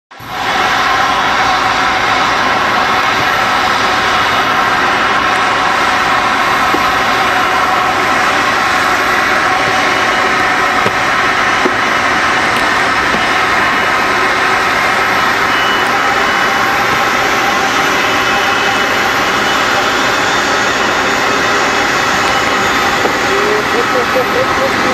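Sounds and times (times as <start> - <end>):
jet engines whining: 0.1 - 24.9.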